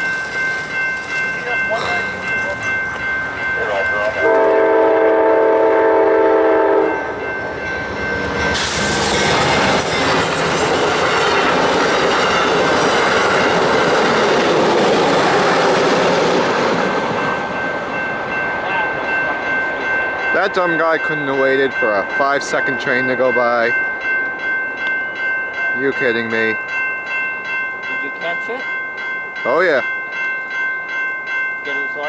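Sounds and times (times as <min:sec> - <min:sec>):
crossing warning bell ringing: 0:00.0 - 0:32.0
locomotive horn blast: 0:04.2 - 0:07.1
train wheels clacking on rails: 0:06.9 - 0:23.8.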